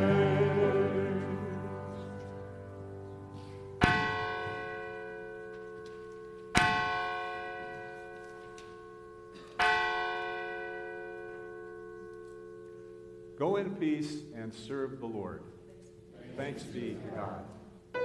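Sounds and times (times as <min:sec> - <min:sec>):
church bell ringing: 0:00.0 - 0:13.8.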